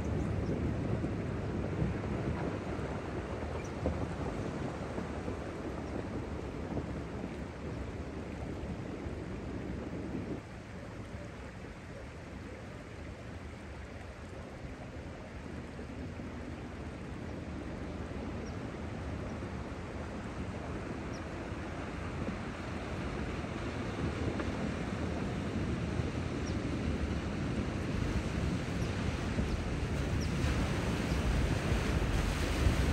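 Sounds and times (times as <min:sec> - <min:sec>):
wind rumbling on microphone: 0:00.0 - 0:32.9
car wading through water: 0:26.9 - 0:32.9.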